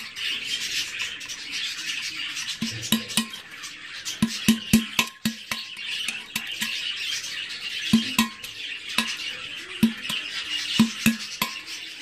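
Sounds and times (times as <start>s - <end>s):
tool chipping a clay pot: 2.6s - 3.5s, 4.1s - 7.0s, 7.8s - 11.8s.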